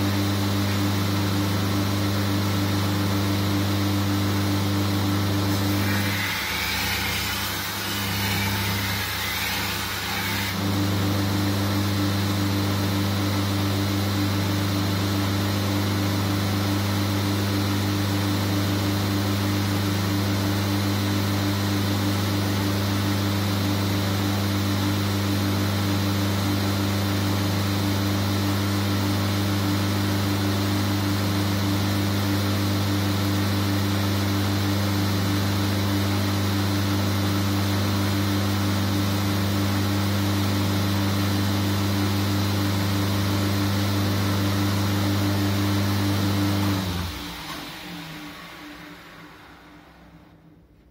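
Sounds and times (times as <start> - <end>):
belt grinder humming: 5.5 - 10.8
blade grinding on belt: 5.6 - 10.6.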